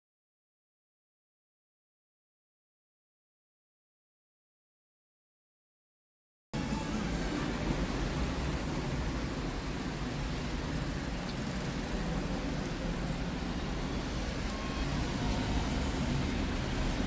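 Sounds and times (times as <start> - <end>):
street traffic rumble: 6.6 - 17.0.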